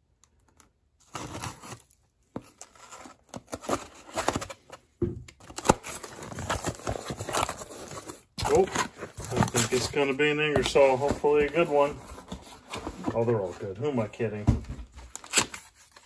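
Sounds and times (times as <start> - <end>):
tape tearing: 0.5 - 4.7, 5.4 - 12.8, 15.1 - 16.0.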